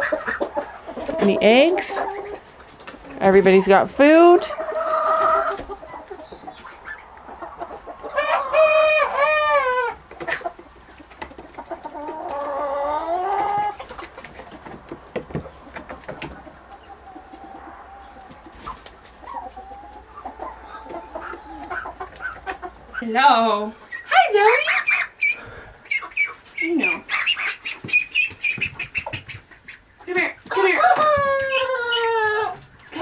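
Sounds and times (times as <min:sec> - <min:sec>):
chickens clucking: 0:00.0 - 0:33.0
rooster crowing: 0:08.2 - 0:10.0, 0:30.5 - 0:32.6.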